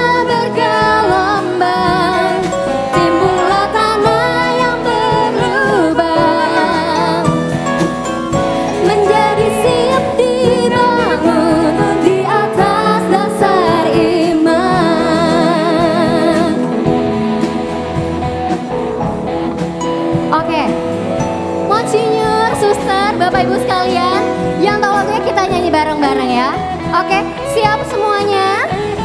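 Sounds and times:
women singing: 0.0 - 7.8, 8.6 - 17.6, 21.7 - 29.0
live band playing: 0.0 - 29.0.

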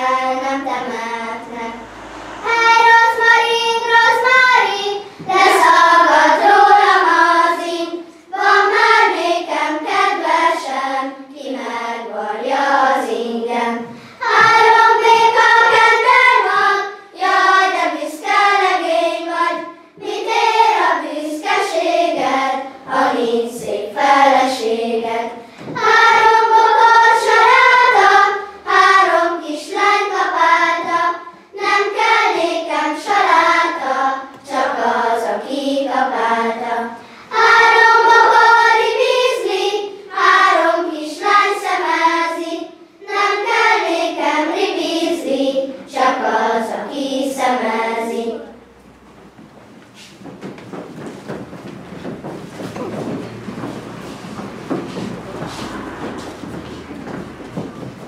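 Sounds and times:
children's choir singing: 0.0 - 58.0.

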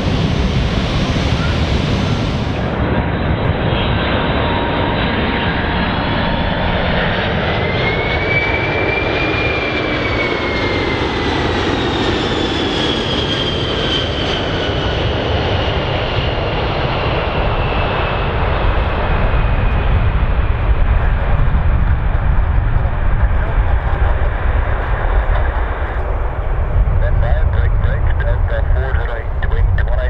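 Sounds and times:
jet airliner passing: 0.0 - 30.0.

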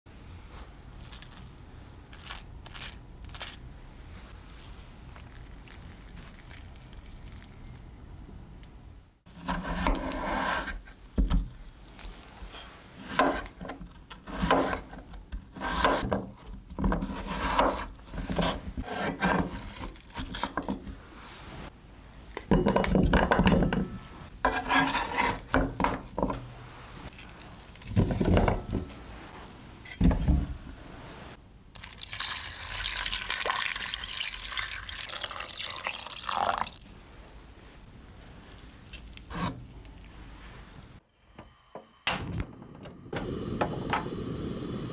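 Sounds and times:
knife slicing potatoes on board: 9.4 - 10.8, 13.0 - 14.9, 15.5 - 16.1.

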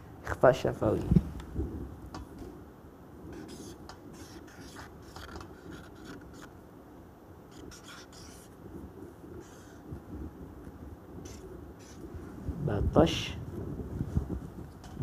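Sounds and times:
marker squeaking on whiteboard: 3.4 - 6.5, 7.5 - 8.5, 9.4 - 9.8, 11.2 - 12.0.

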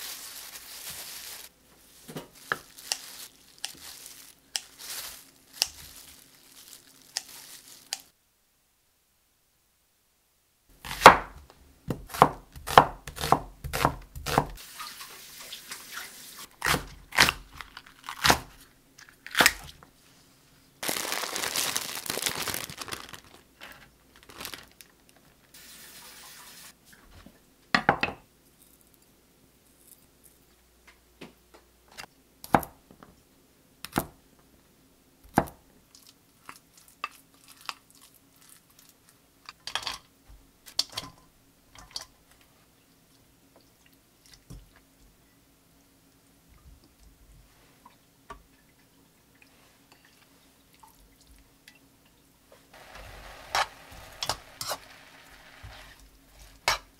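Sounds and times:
rustling tearing noise: 0.0 - 8.1, 16.6 - 19.7, 20.8 - 25.6
cleaver chopping on wooden board: 11.9 - 14.6.

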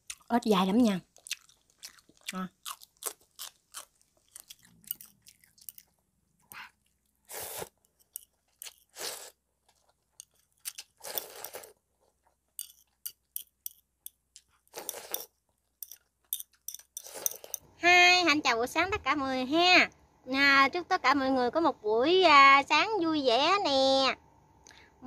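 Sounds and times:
chewing with crunchy clicks: 1.1 - 9.0, 9.6 - 17.6
noodles slurped: 3.2 - 9.9, 10.6 - 11.8.

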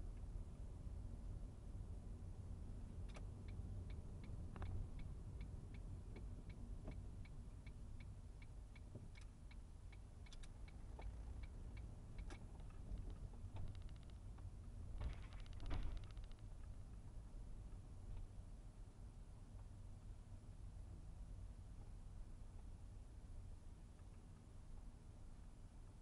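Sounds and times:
low engine and road rumble: 0.0 - 26.0
turn signal clicking: 8.8 - 14.5.

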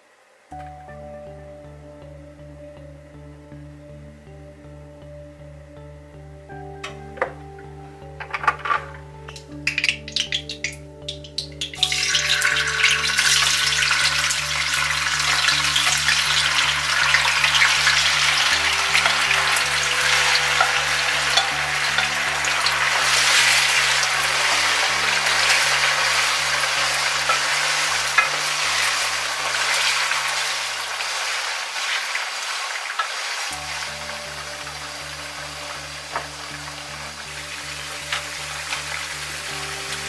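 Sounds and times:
tofu sizzling in hot oil: 9.3 - 40.0.

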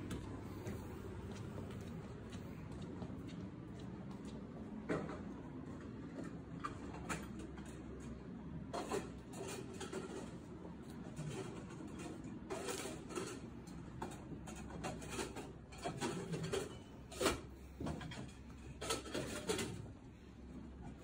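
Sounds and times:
steady low hum: 0.0 - 12.4.

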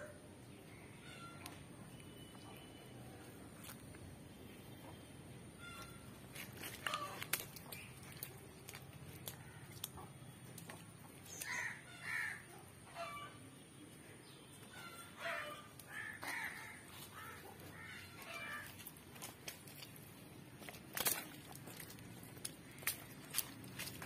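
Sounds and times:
faint background noise: 0.0 - 24.0
bird calling: 4.7 - 10.4, 14.6 - 19.9.

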